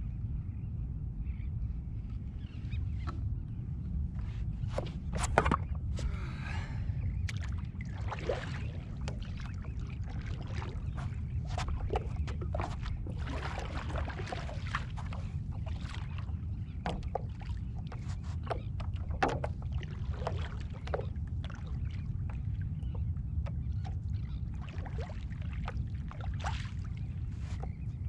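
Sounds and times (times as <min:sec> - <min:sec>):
water splashing against board: 0:04.7 - 0:06.1, 0:07.3 - 0:27.9
paddle knocking on board: 0:09.0 - 0:21.6.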